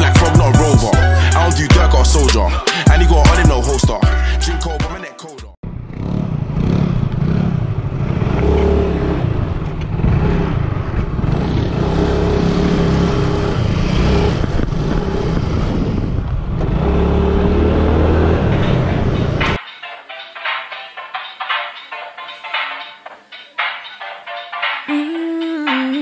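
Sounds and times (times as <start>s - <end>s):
small motorbike engine: 5.6s - 19.6s
wind rushing on microphone: 13.2s - 17.8s.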